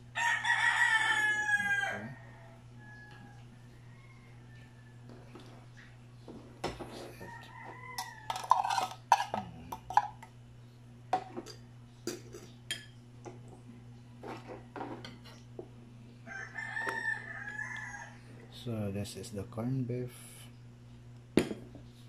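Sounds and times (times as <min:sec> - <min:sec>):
rooster crowing: 0:00.1 - 0:05.3, 0:07.0 - 0:08.9, 0:16.2 - 0:18.6
fork scraping bowl: 0:08.0 - 0:10.1.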